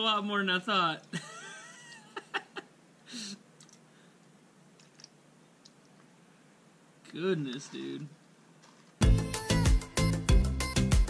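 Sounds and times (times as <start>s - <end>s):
sharp clicks: 3.6s - 3.8s
small ticks: 3.6s - 3.8s.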